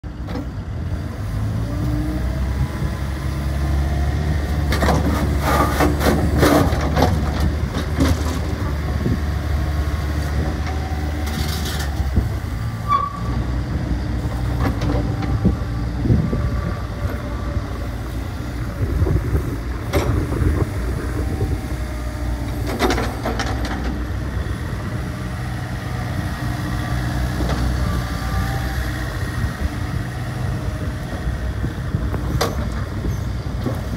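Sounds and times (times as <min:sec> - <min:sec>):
excavator diesel engine running: 0:00.1 - 0:33.9.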